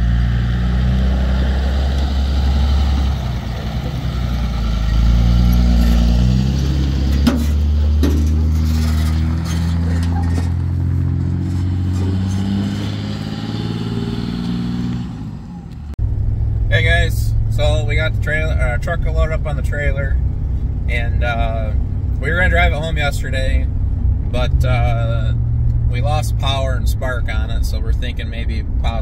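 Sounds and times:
truck engine drone: 0.0s - 29.0s
tyres on gravel: 1.4s - 15.9s.

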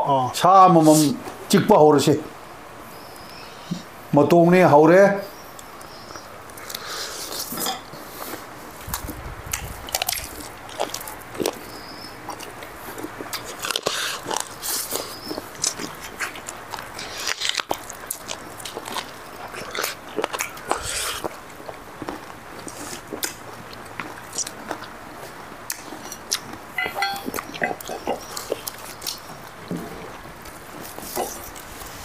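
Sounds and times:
people biting and chewing: 6.5s - 32.0s.

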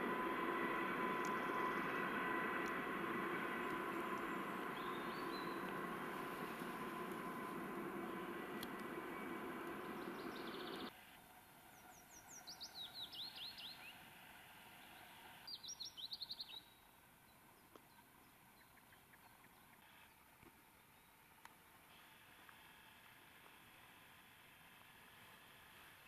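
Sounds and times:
distant diesel locomotive rumble: 0.0s - 10.9s
songbird singing: 0.0s - 10.9s, 11.5s - 14.0s, 15.5s - 20.2s.

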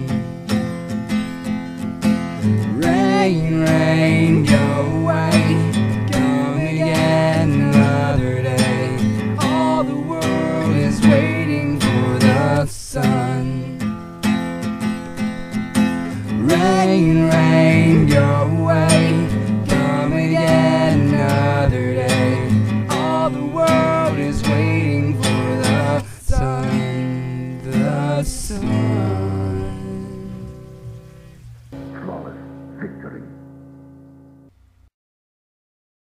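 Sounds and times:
strummed acoustic guitar: 0.0s - 34.6s
person singing: 2.7s - 13.8s, 16.4s - 30.6s, 31.9s - 33.4s.

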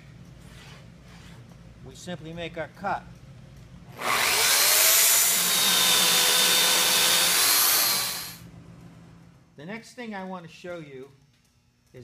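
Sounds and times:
electric saw cutting timber: 4.0s - 8.4s.

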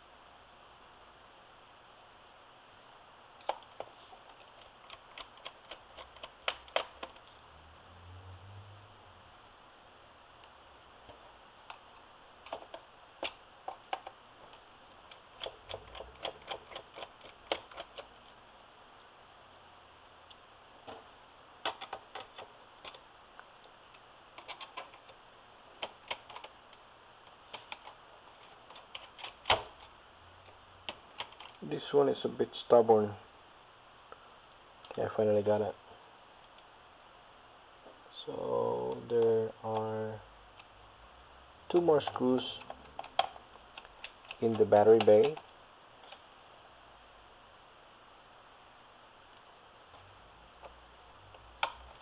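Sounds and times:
screwdriver clicks and taps: 4.6s - 7.2s.

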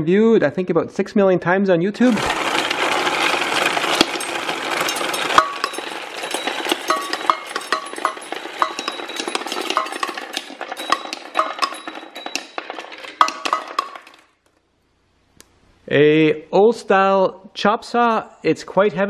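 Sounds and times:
marbles rolling and clicking: 2.1s - 14.6s.

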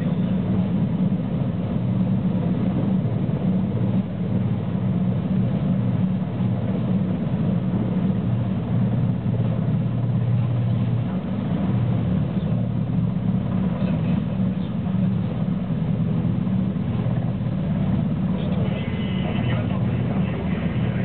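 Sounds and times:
helicopter hovering: 0.0s - 21.0s.

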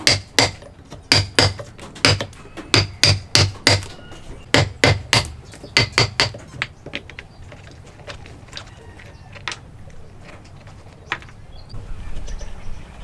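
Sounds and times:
hammer driving chisel into wood: 0.0s - 3.9s, 4.5s - 6.7s.

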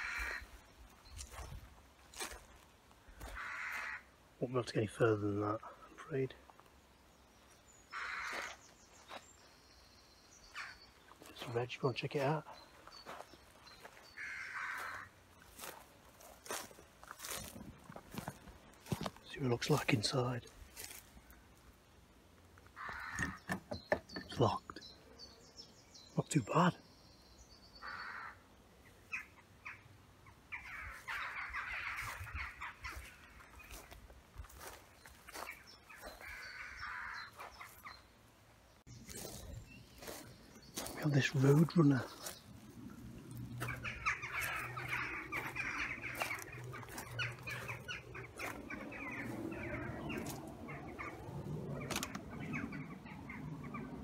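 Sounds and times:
crow harsh calls: 0.0s - 0.7s, 3.1s - 4.2s, 7.9s - 8.7s, 10.4s - 10.9s, 12.5s - 19.1s, 22.7s - 23.6s, 27.8s - 28.5s, 29.1s - 38.1s, 40.0s - 54.0s
birds chattering: 0.0s - 21.6s, 22.4s - 54.0s.

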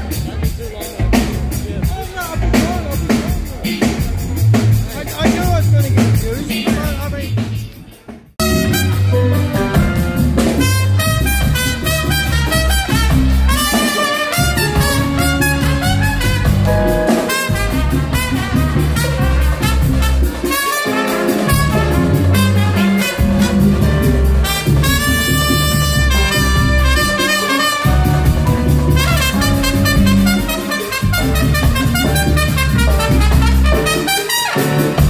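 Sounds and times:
drum kit: 0.0s - 35.0s
electric bass guitar: 8.4s - 20.5s, 21.2s - 34.0s
trumpet melody: 8.4s - 35.0s.

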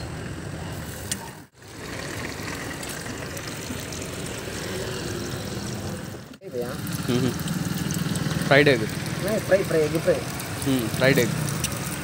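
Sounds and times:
omelettes sizzling in pans: 6.4s - 12.0s.

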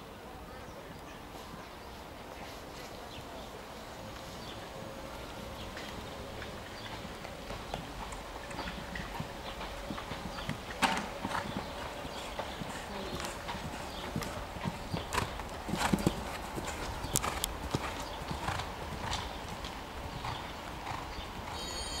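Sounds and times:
horse hoofbeats on grass: 5.4s - 22.0s.

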